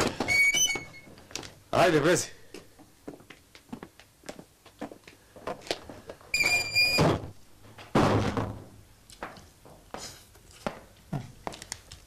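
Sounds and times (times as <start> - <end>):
door hinge squealing: 0.0 - 1.1, 6.4 - 7.1
wooden door banging shut: 7.9 - 8.8.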